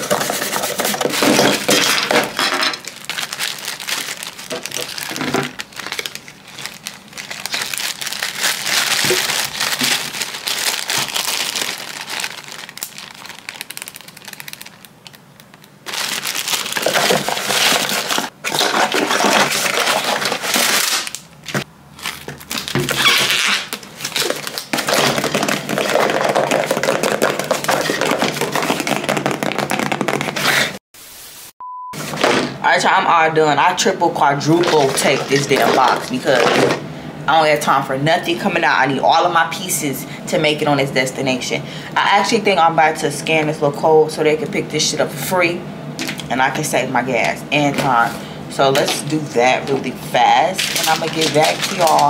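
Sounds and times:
plastic bag crinkling: 0:00.0 - 0:30.8, 0:34.5 - 0:36.8, 0:50.5 - 0:52.0.

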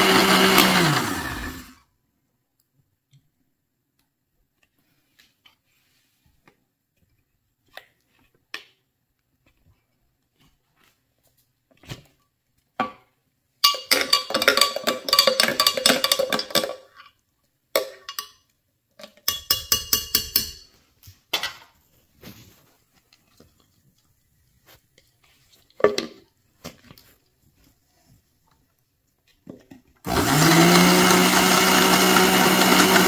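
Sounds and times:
metal spoon clinking in jar: 0:13.6 - 0:17.0, 0:17.8 - 0:18.5, 0:19.2 - 0:20.7.

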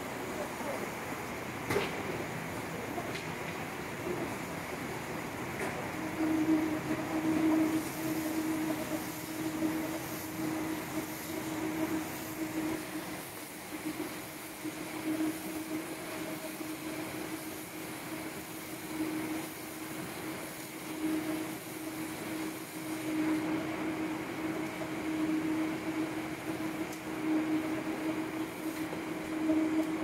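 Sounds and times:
baler mechanical hum: 0:00.0 - 0:30.0.

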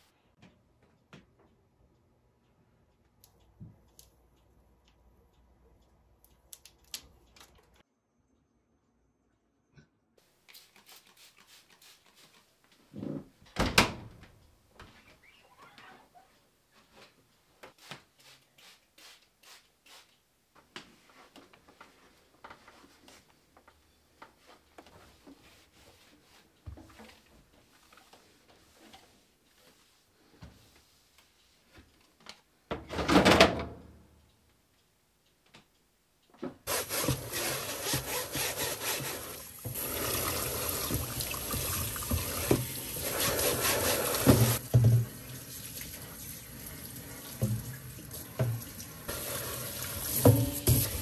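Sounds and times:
dryer door opening: 0:13.5 - 0:14.2
soft squeaks and light taps: 0:14.8 - 0:17.1
cloth wiping glass and rubber: 0:36.7 - 0:44.6
tap running into sink: 0:39.6 - 0:45.2, 0:48.4 - 0:51.0.

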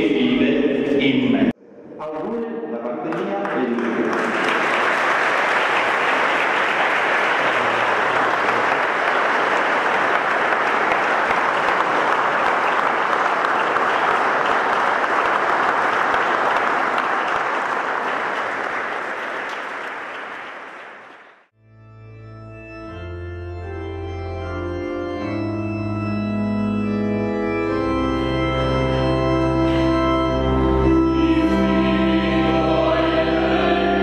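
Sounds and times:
congregation clapping: 0:03.0 - 0:21.5.

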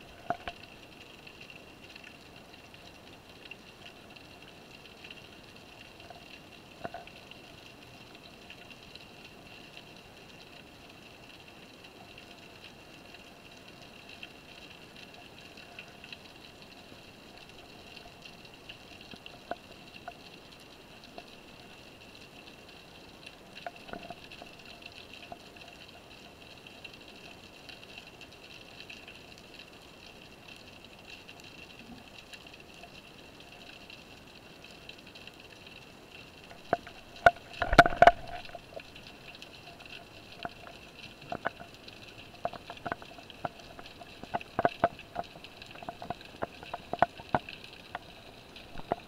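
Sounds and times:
sharp underwater clicks and knocks: 0:00.0 - 0:00.7, 0:06.8 - 0:07.2, 0:23.6 - 0:25.4, 0:36.4 - 0:49.0
muffled underwater hiss: 0:00.0 - 0:49.0.

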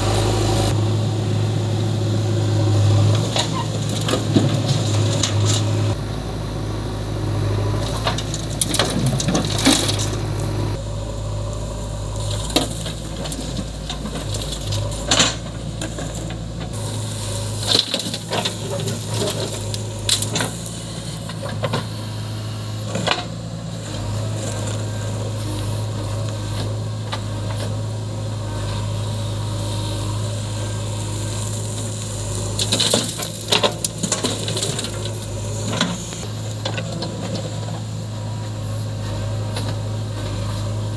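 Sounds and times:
diesel engine running: 0:00.0 - 0:40.9
soil and stones dropping into trolley: 0:03.2 - 0:05.8, 0:07.8 - 0:10.5, 0:12.1 - 0:21.9, 0:30.2 - 0:37.9.

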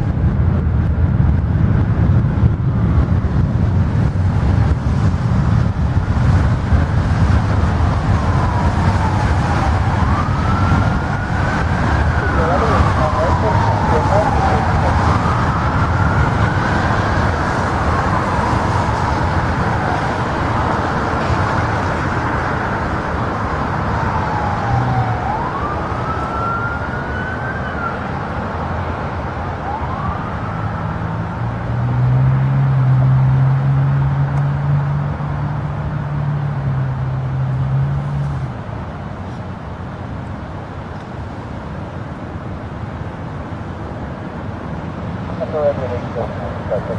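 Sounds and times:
jet engine roar: 0:00.2 - 0:31.8
siren wailing: 0:07.1 - 0:34.9, 0:45.4 - 0:46.9.

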